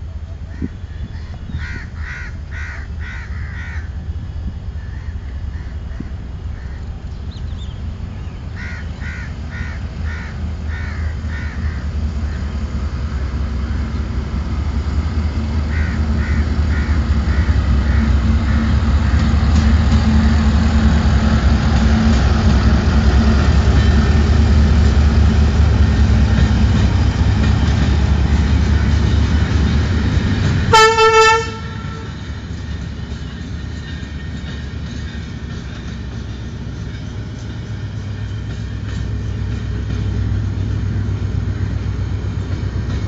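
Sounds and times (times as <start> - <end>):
diesel locomotive engine: 0.0 - 43.0
train wheels rumbling on rails: 0.0 - 43.0
crows cawing: 1.6 - 3.9, 8.6 - 12.4, 15.7 - 18.6.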